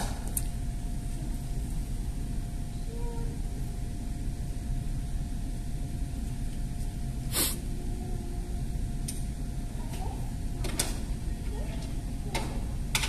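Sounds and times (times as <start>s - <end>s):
short sharp hiss: 7.3s - 7.6s.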